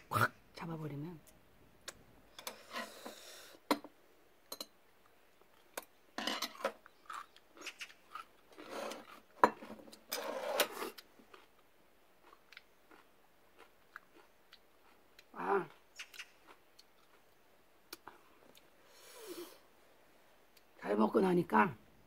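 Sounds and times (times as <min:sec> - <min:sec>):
person chewing: 0:06.9 - 0:10.1, 0:10.7 - 0:18.8.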